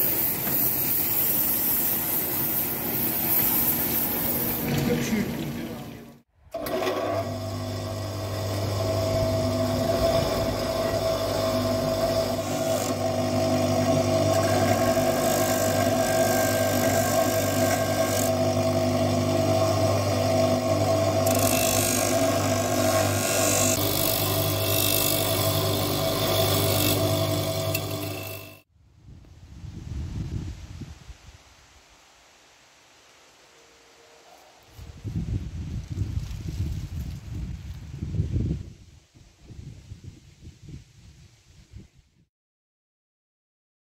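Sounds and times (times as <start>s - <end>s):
steel hissing on polishing wheel: 0.0s - 4.7s
bench grinder motor hum: 6.6s - 28.6s.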